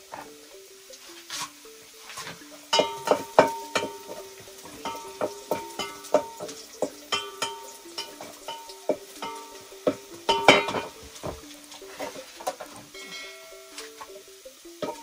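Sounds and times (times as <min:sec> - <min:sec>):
faint background music: 0:00.0 - 0:15.0
spoon stirring in a saucepan: 0:00.0 - 0:15.0
wooden spoon knocking a metal pot: 0:02.2 - 0:13.5, 0:14.8 - 0:15.0.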